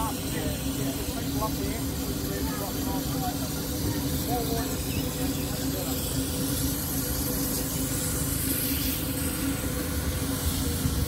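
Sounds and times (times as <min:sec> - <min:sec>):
hiss: 0:00.0 - 0:11.0.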